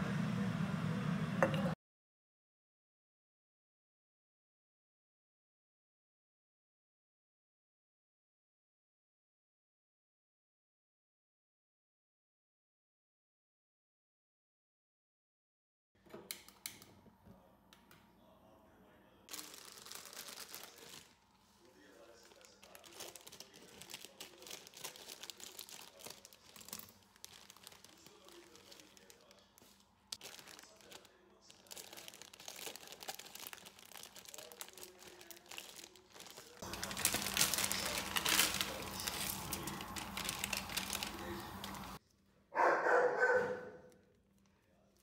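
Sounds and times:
crinkling and rustling: 19.3 - 42.0.

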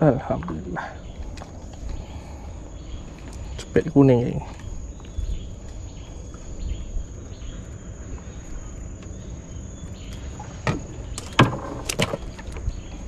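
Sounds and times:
crickets chirring: 0.0 - 13.0
low rumbling background: 0.0 - 13.0
sharp clicks and knocks: 10.6 - 12.7.

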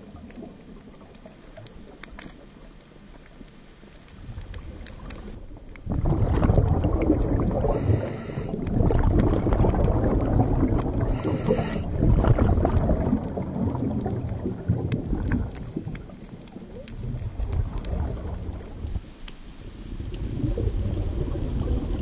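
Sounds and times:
exhaled bubbles rumbling underwater: 0.0 - 22.0
regulator inhalation hiss: 7.6 - 8.6, 11.1 - 11.9.

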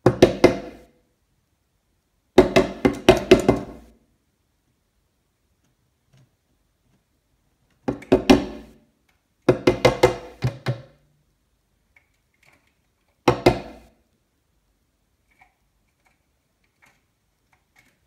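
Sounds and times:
beak knocking on window glass: 2.4 - 3.8, 9.5 - 10.9, 13.2 - 13.8.

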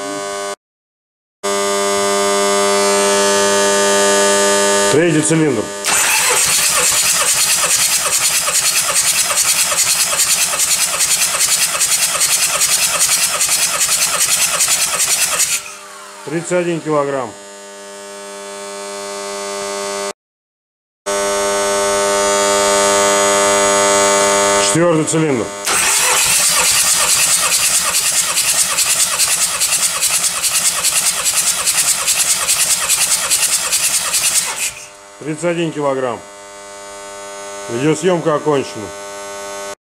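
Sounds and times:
engine cranking on starter motor: 5.8 - 17.2, 25.6 - 35.0.

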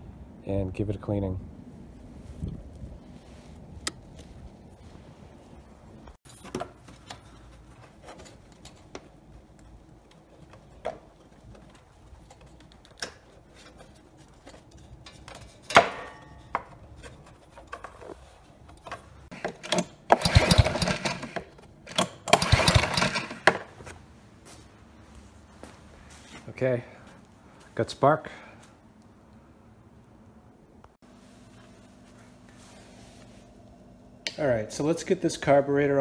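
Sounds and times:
engine cranking on recoil starter: 19.6 - 23.7.

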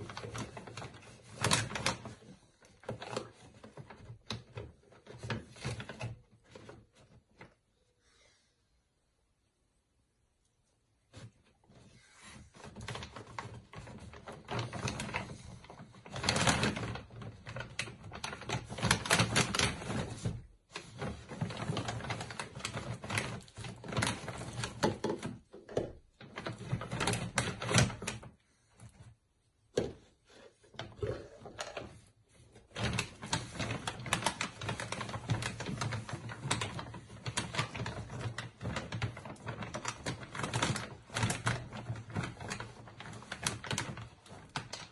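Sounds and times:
plastic bag crinkling: 12.6 - 25.2, 30.9 - 44.9.

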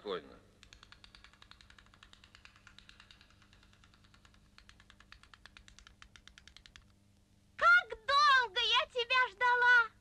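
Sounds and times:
faint rapid clicking: 0.6 - 7.0
low steady hum: 1.3 - 10.0.

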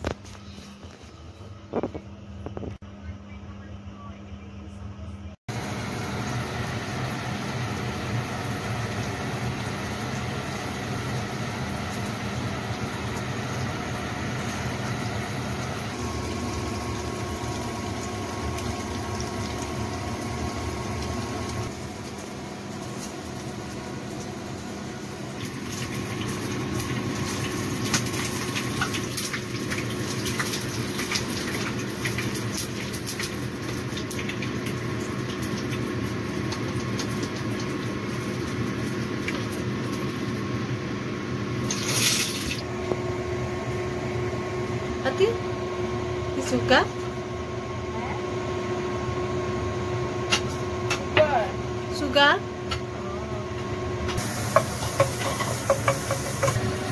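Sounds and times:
oil crackling: 5.5 - 40.4
food sizzling in hot oil: 5.5 - 42.8, 54.1 - 56.9.

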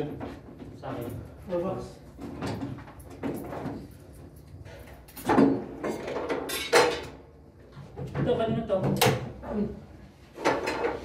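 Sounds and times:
office furniture knocking and clattering: 2.1 - 4.4, 5.1 - 9.7, 10.3 - 11.0.

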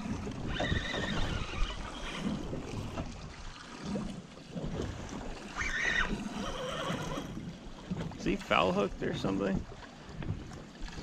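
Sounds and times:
waves washing against boat: 0.0 - 11.0
wind buffeting microphone: 0.0 - 11.0.

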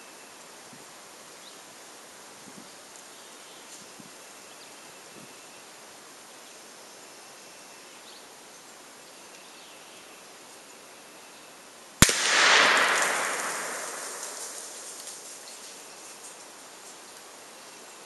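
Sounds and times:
slug hitting target crack: 12.0 - 15.4
distant shotgun report: 12.0 - 15.8.

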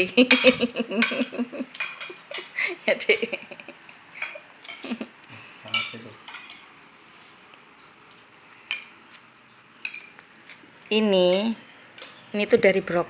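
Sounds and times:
metal spoons clinking on plates: 0.2 - 2.5, 4.2 - 5.0, 5.7 - 6.7, 8.6 - 9.0, 9.8 - 10.6, 11.2 - 12.2.

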